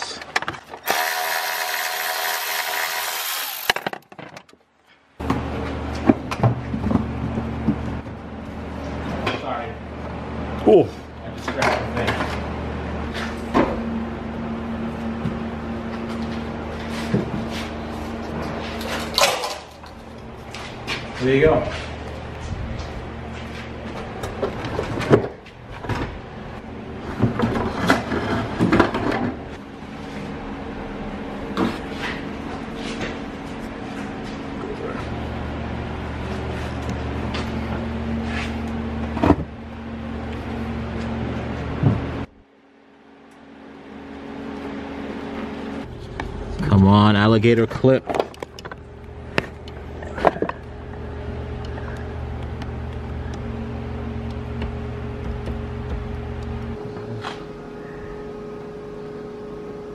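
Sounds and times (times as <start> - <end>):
seat motor running: 0.8 - 3.8, 48.4 - 57.6.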